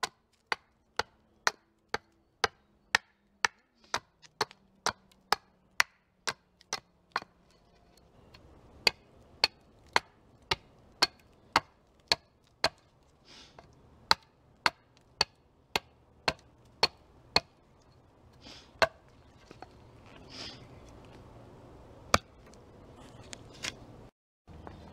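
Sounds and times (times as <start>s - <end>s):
hatchet chopping wood: 0.0s - 7.4s, 8.8s - 12.9s, 13.6s - 17.6s, 18.8s - 19.1s, 22.1s - 22.4s.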